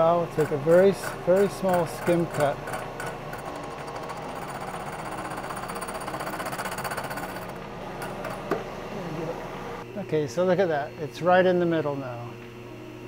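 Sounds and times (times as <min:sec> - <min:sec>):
milling machine cutting steel: 0:00.2 - 0:08.5.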